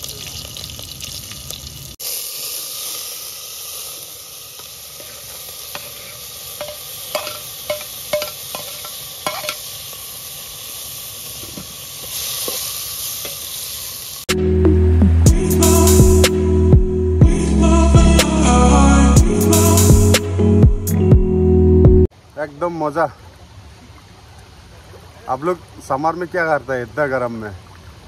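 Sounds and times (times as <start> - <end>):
meat sizzling in hot oil: 0.0 - 14.3
metal spoon clinking on pot: 5.8 - 9.6
music: 14.3 - 22.1.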